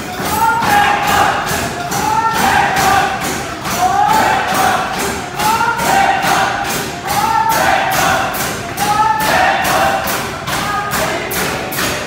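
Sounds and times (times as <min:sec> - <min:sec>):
voices singing over a steady beat: 0:00.0 - 0:12.0.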